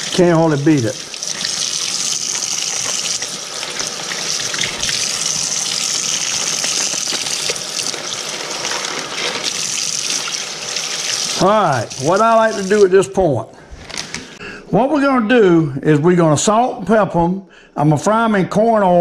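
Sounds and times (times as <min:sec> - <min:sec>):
tap water splashing: 0:01.1 - 0:05.2.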